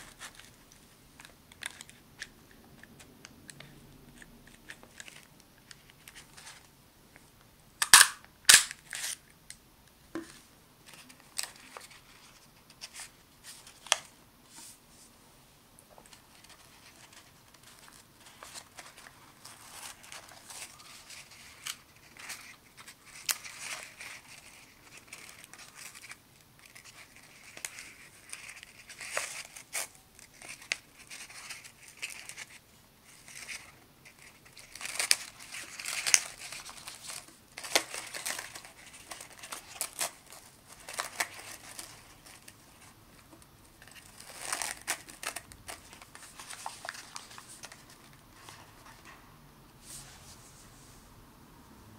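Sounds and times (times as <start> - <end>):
paper rustling and crinkling: 4.4 - 6.7, 10.8 - 14.8, 16.0 - 49.2.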